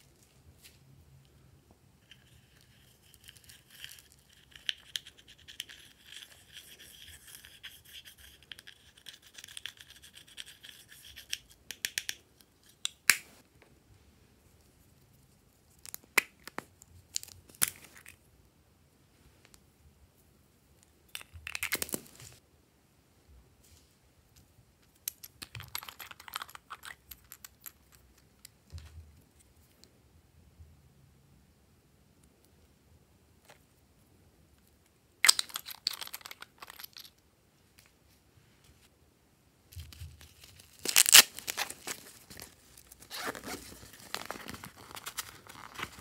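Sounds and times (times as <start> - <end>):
stick scraping makeup powder: 2.1 - 12.8.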